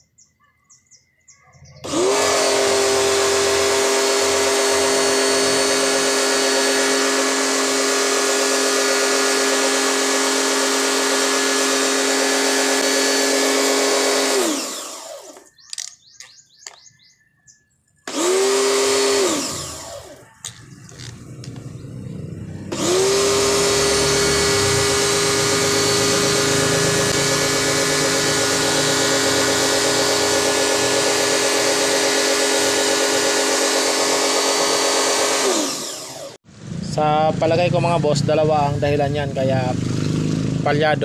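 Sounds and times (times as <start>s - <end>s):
pressure washer spraying water: 1.8s - 15.4s, 22.7s - 36.1s.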